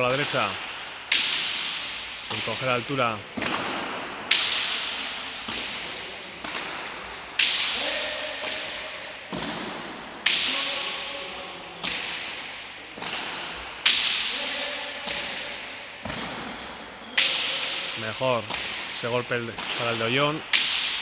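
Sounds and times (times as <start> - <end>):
short squeaks: 0.6 - 1.2, 9.0 - 10.0.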